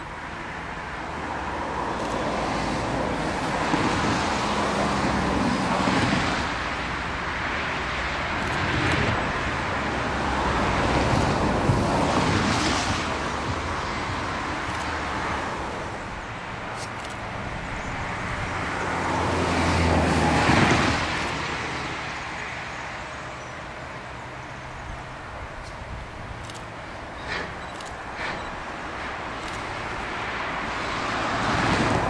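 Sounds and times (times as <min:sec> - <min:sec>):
steam locomotive exhaust: 0:27.1 - 0:29.1.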